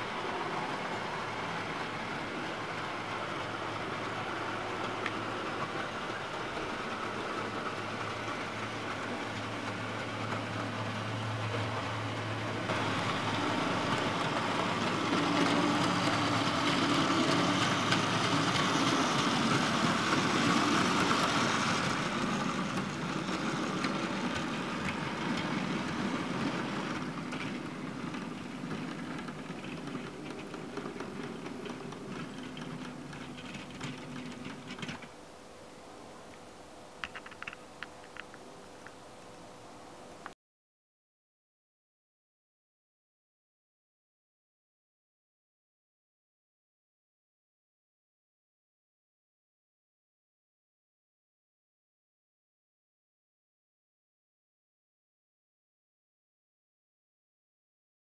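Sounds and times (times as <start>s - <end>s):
wheels rattling on rails: 0.0s - 35.2s
model train motor whirring: 12.7s - 35.1s.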